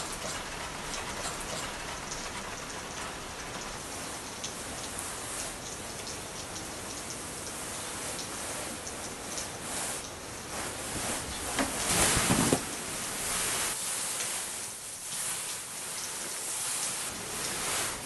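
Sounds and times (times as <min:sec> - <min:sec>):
steady hiss: 0:00.0 - 0:18.0
bedding rustling: 0:10.5 - 0:18.0.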